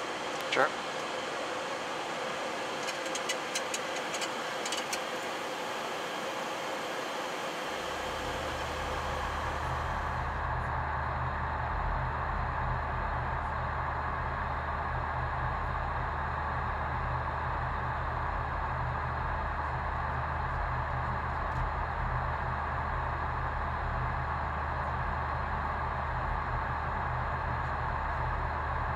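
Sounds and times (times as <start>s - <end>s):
airflow and air-conditioning hiss: 0.0s - 10.4s
low steady hum: 0.0s - 28.9s.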